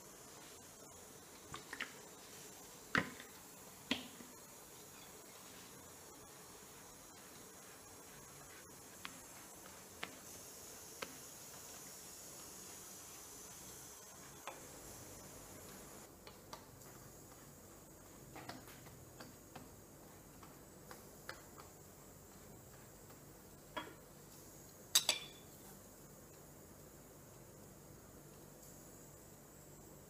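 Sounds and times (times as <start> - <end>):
utensils tapping on griddle: 24.9 - 25.5.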